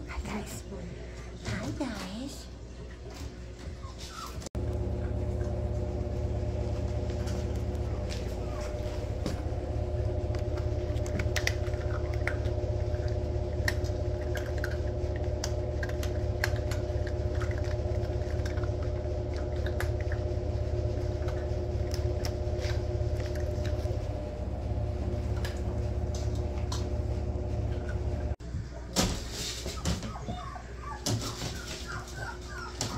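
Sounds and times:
steady low hum: 4.1 - 28.9
puppies crunching dry kibble: 4.8 - 24.2.

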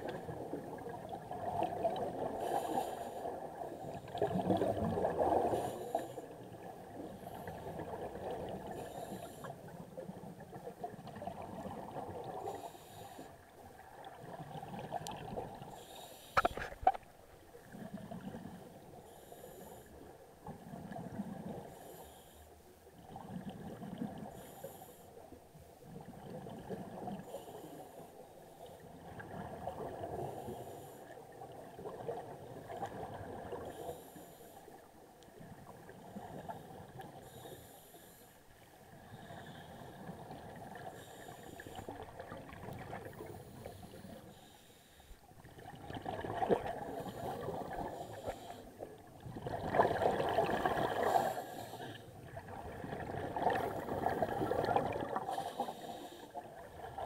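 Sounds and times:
regulator hiss on inhale: 2.3 - 4.3, 5.5 - 7.7, 8.7 - 9.8, 12.4 - 13.5, 15.7 - 16.8, 18.9 - 20.2, 21.6 - 22.7, 24.2 - 25.3, 27.1 - 28.8, 30.2 - 31.2, 33.6 - 34.9, 36.2 - 42.0, 43.2 - 45.3, 46.8 - 48.9, 50.9 - 52.2, 53.6 - 56.5.

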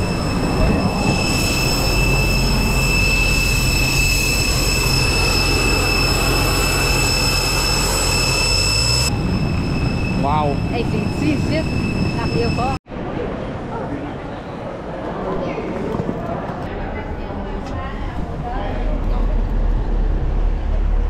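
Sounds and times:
jet engine whine: 0.0 - 12.8
low rumble: 0.0 - 12.8, 16.7 - 21.0.

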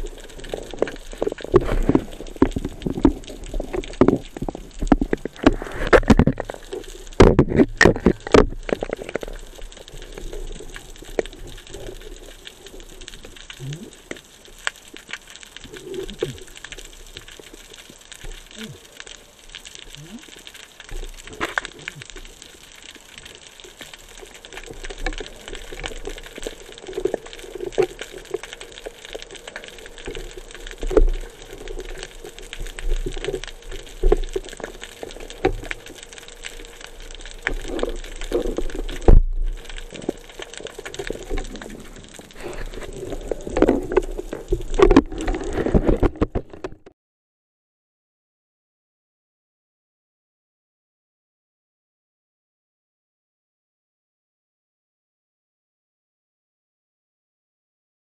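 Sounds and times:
water gurgling underwater: 0.0 - 19.0, 19.7 - 46.9.

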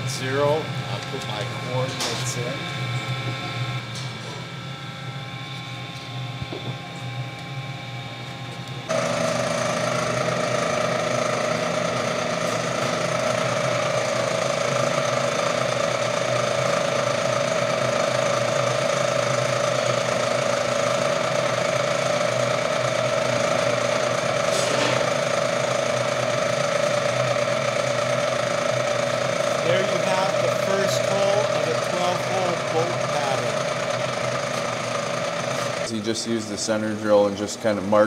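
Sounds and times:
milling machine humming: 0.0 - 38.0
drill cutting metal: 8.9 - 38.0.

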